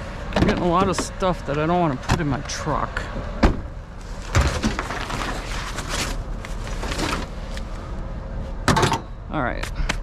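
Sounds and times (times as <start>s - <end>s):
rustling: 4.0s - 7.8s.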